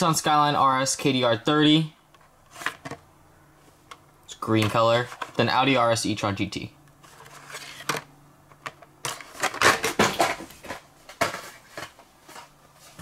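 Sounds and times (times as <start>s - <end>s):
plastic blister packs clicking and rustling: 7.1s - 13.0s.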